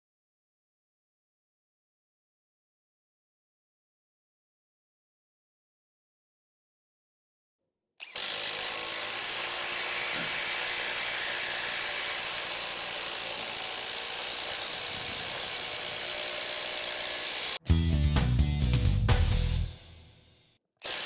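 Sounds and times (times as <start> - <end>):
impact driver rattling: 8.0 - 17.6.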